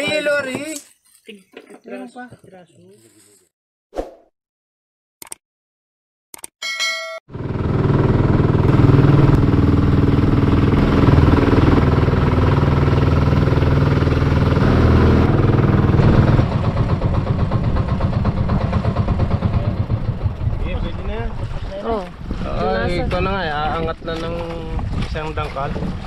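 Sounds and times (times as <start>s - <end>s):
boat engine running: 7.3s - 26.0s.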